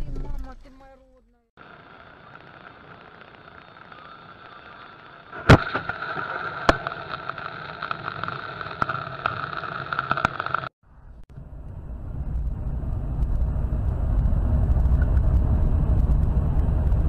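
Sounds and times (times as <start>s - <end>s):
sharp loud crack: 5.3s - 7.3s
small sharp ticks: 6.6s - 10.7s.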